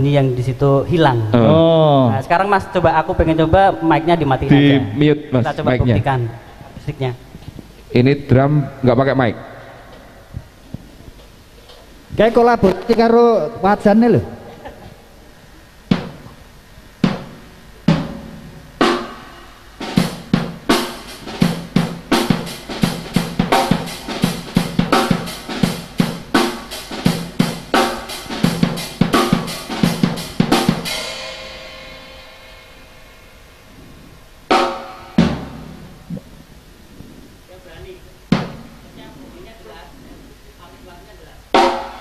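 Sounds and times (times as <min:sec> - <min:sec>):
acoustic drum kit playing: 0:15.8 - 0:36.6, 0:38.2 - 0:39.0, 0:41.5 - 0:42.0
cymbal ringing: 0:29.1 - 0:33.8.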